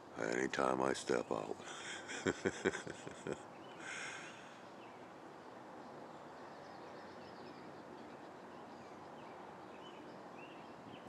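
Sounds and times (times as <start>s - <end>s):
low background hiss: 0.0s - 11.0s
faint bird chirps: 5.8s - 11.0s.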